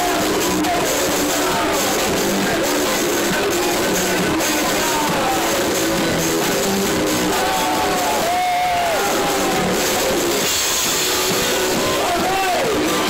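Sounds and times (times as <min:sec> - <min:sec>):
man singing: 0:00.0 - 0:05.9
live electro-industrial band: 0:00.0 - 0:13.0.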